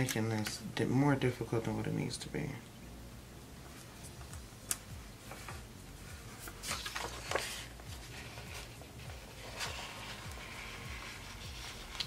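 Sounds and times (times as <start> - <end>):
paper rustling: 5.2 - 12.0.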